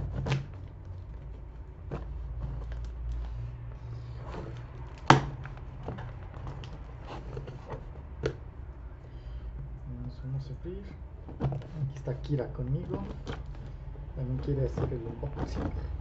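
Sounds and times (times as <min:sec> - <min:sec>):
packing tape and cardboard tearing: 0:00.0 - 0:03.5.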